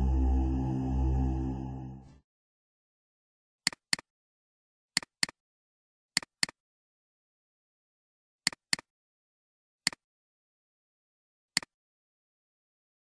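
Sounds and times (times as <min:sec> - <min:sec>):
mouse double-clicking: 0:03.7 - 0:04.1, 0:08.4 - 0:08.9, 0:09.8 - 0:10.0, 0:11.5 - 0:11.8.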